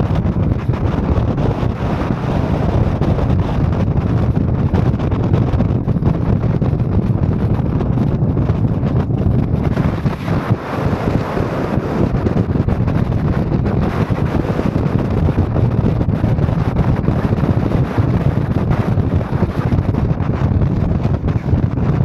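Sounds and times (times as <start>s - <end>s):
car engine and tyre noise: 0.0s - 21.7s
wind buffeting microphone: 0.0s - 22.0s.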